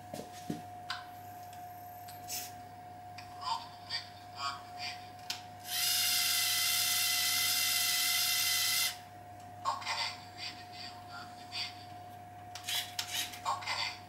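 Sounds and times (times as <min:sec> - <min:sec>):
servo motor whining: 0:05.6 - 0:09.0.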